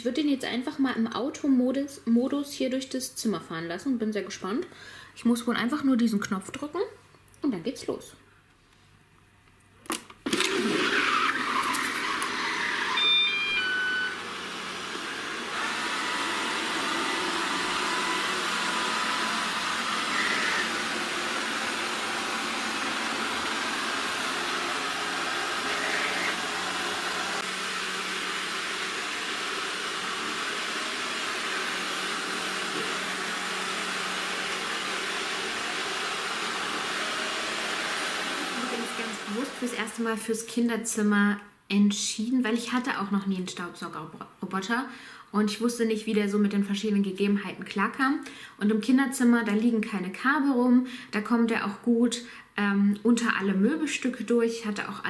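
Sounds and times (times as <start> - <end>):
robot vacuum running: 10.3 - 40.0
short beeps at different pitches: 13.0 - 14.2.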